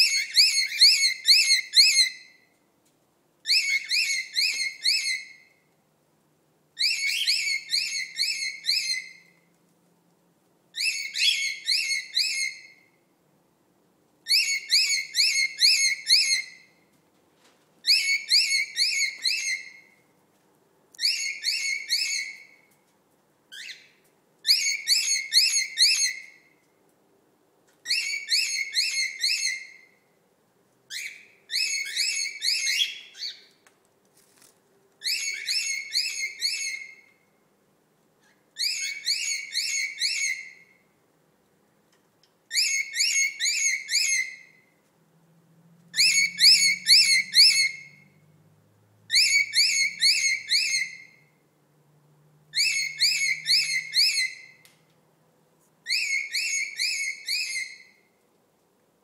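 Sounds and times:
cockatiel whistling: 0.0 - 2.3, 3.5 - 5.5, 6.8 - 9.4, 10.8 - 12.8, 14.3 - 16.6, 17.8 - 19.9, 21.0 - 22.6, 23.6 - 26.4, 27.8 - 29.9, 30.9 - 33.5, 35.0 - 37.1, 38.6 - 40.7, 42.5 - 44.6, 46.0 - 48.0, 49.1 - 51.2, 52.5 - 54.6, 55.9 - 58.0.

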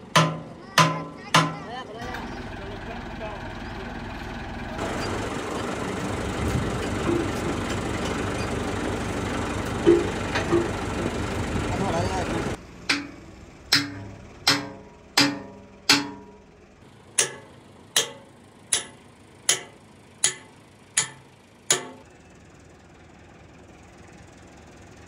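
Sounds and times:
hammer striking metal: 0.1 - 1.6, 12.8 - 16.4, 17.2 - 22.1.

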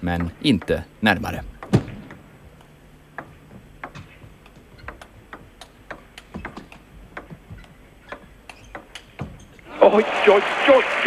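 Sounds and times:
table tennis ball clicking: 1.6 - 9.4.

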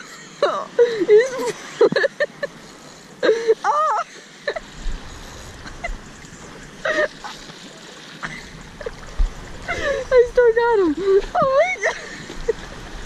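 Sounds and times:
sea water splashing: 0.0 - 13.0
wind rumbling on microphone: 4.5 - 13.0.

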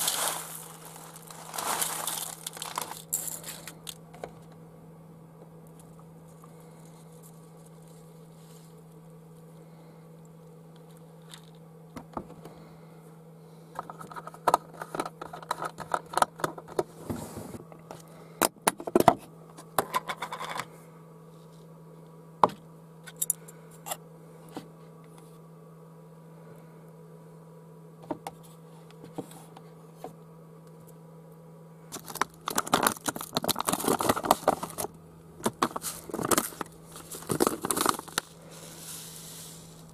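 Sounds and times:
pouch crinkling: 0.0 - 3.7, 32.0 - 34.9, 35.5 - 39.0
steady low hum: 0.0 - 39.9.

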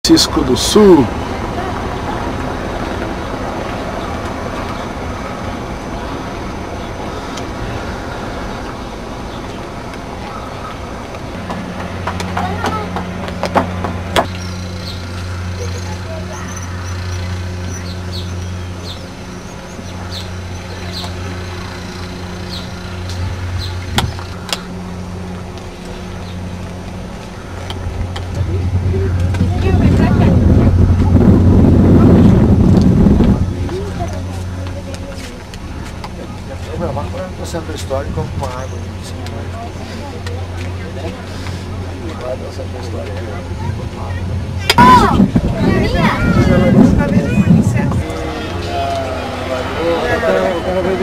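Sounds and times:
low engine hum: 0.0 - 51.0
wind buffeting microphone: 22.3 - 39.0, 43.2 - 51.0.

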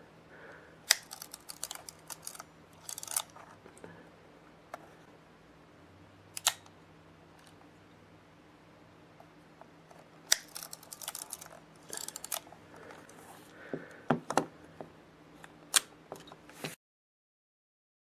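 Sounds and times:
camera clicks: 6.4 - 6.7.

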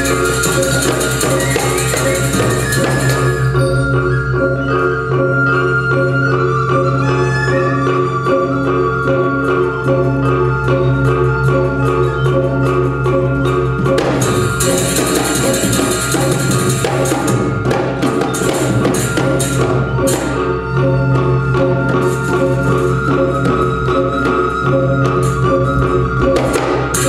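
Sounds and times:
drumming: 0.0 - 3.6, 13.8 - 27.0
metallophones ringing: 0.0 - 6.4, 7.6 - 27.0.

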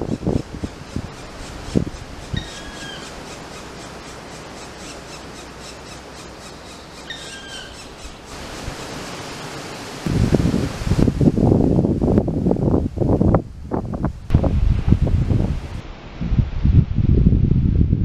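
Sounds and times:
wind buffeting microphone: 0.0 - 4.3, 10.0 - 18.0
woodpecker calls: 0.0 - 9.0
background hiss: 0.0 - 17.8.

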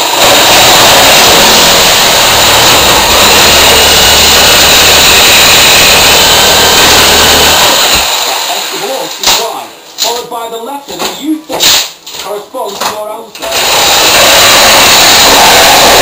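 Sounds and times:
power tool stripping plaster: 0.0 - 9.5, 13.4 - 16.0.

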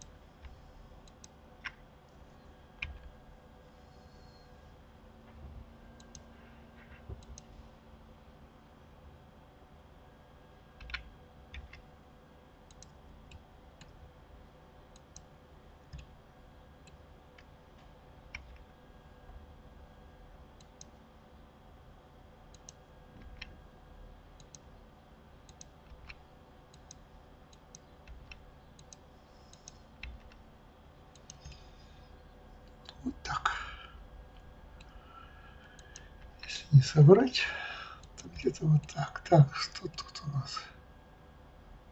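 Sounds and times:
low steady hum: 0.0 - 41.9
mouse and keyboard clicks: 10.8 - 11.8, 18.3 - 18.6.

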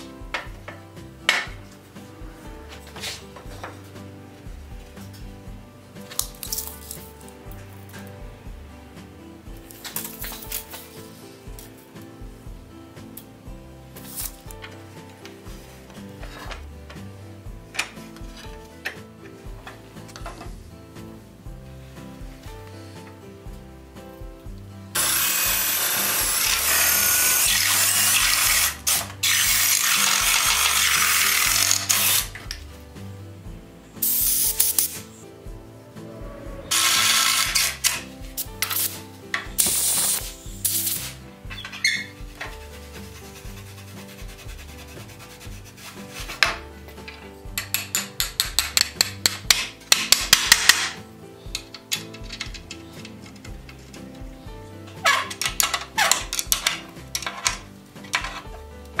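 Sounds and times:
drill boring through wood: 25.0 - 32.3, 36.7 - 38.0.

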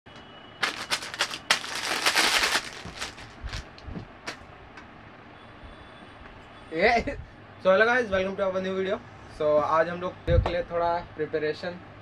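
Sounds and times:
crinkling and crackling: 0.6 - 4.4.

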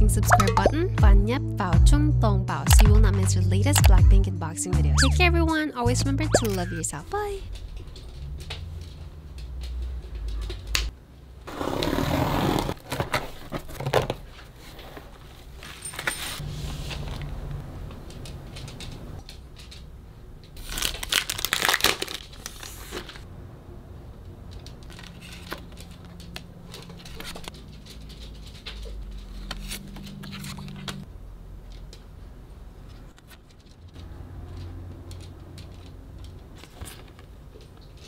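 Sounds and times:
plastic packaging crinkling: 20.6 - 23.2.

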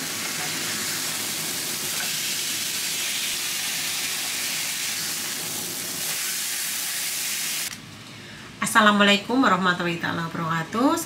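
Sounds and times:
steak sizzling in hot oil: 0.0 - 7.7.

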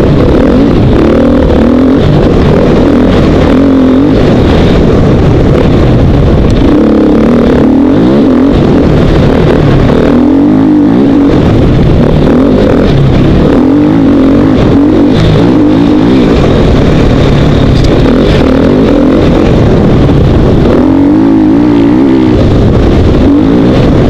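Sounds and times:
motorcycle engine revving: 0.0 - 24.0.

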